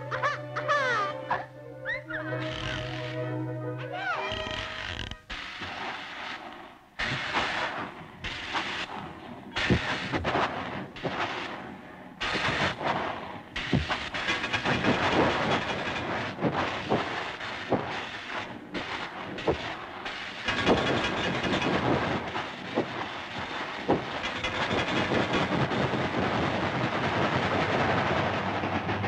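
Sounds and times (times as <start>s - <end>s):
cartoon steam locomotive chuffing: 12.1s - 29.0s
clattering wheels: 12.2s - 29.0s
sharp knocks: 13.6s - 19.8s, 20.4s - 27.3s.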